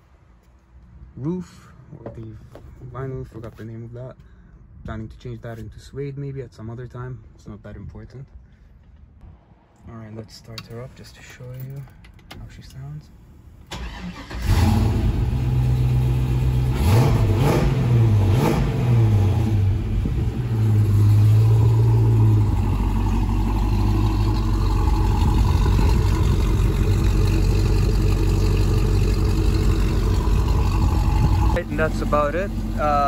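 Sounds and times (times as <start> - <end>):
car engine starting and revving: 13.7 - 33.0.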